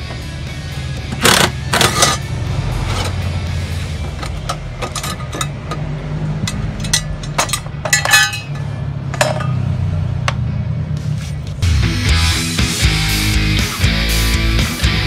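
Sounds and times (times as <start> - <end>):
low steady hum: 3.0 - 10.3
metallic clinks of tools: 6.4 - 9.6.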